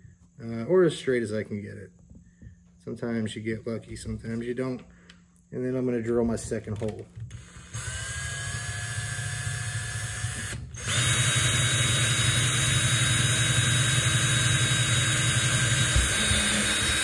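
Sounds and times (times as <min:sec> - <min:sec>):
electric drill boring through plastic: 0:07.2 - 0:17.0.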